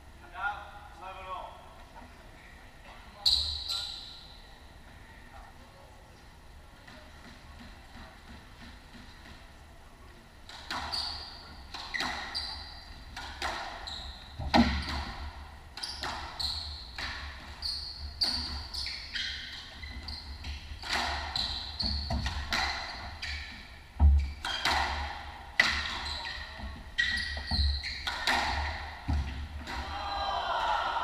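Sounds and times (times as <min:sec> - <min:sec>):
shoes squeaking on hardwood: 0:15.8 - 0:24.9, 0:25.6 - 0:29.6
squash ball cracking off walls: 0:28.1 - 0:30.0.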